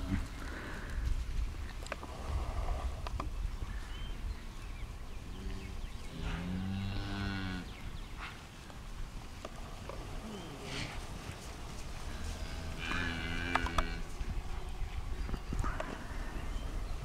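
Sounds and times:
cow mooing: 0:06.2 - 0:07.7, 0:12.1 - 0:14.1.

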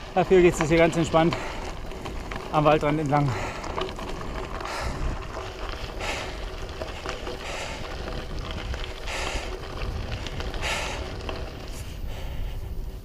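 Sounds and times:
low wind rumble on microphone: 0:00.0 - 0:13.0
heavy hissing breathing: 0:01.3 - 0:01.8, 0:05.8 - 0:08.1, 0:09.0 - 0:09.8, 0:10.6 - 0:13.0.

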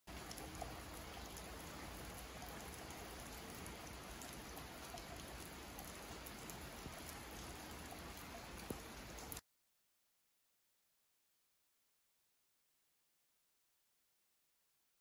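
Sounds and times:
rain on asphalt: 0:00.1 - 0:09.4
drops falling into puddle: 0:02.1 - 0:09.4.

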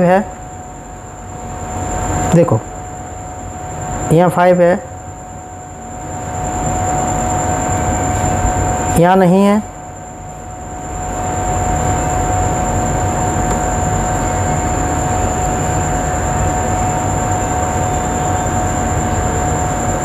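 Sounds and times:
mechanical hum and rumble: 0:00.0 - 0:20.0
whining tones: 0:04.9 - 0:20.0.

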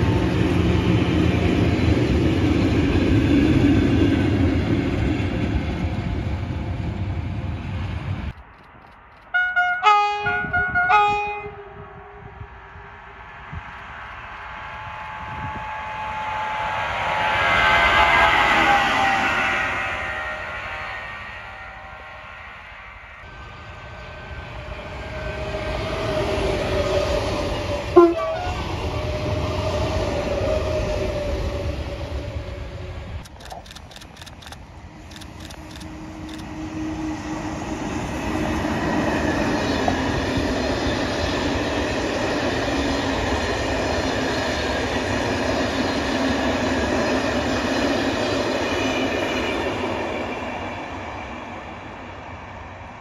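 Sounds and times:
train wheels rumbling on rail: 0:00.0 - 0:53.0
clicks: 0:08.3 - 0:09.3
train horn blast: 0:09.3 - 0:12.6, 0:27.9 - 0:29.2.

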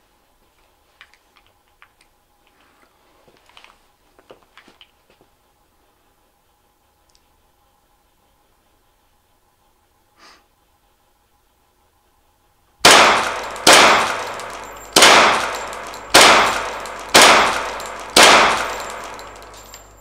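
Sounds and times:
faint click: 0:07.0 - 0:07.3
pistol shots ringing: 0:12.8 - 0:20.0.

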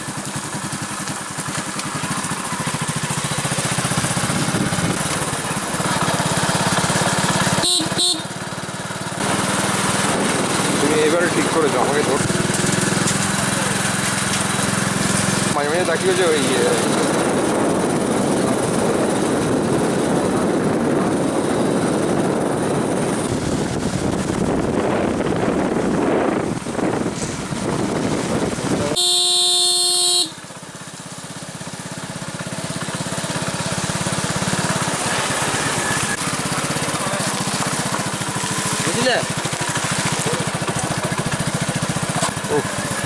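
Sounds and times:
pulsing engine sound: 0:00.0 - 0:43.0
vehicle engine and road noise: 0:00.0 - 0:43.0
vehicle horn: 0:07.5 - 0:08.4, 0:28.9 - 0:30.4.

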